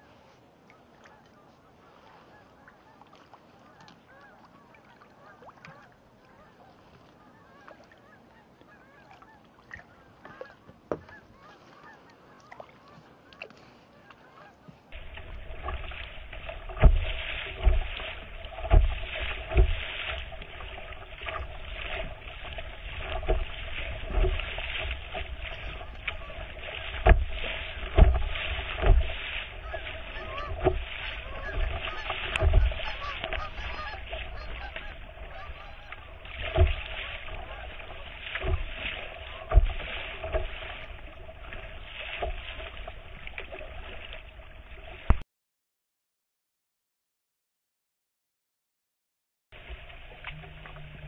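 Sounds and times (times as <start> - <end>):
faint bird calls: 0.0 - 15.0, 24.4 - 39.5
water washing along a hull: 0.0 - 45.2, 49.6 - 51.0
low thumps against hull: 15.0 - 45.2, 49.6 - 51.0.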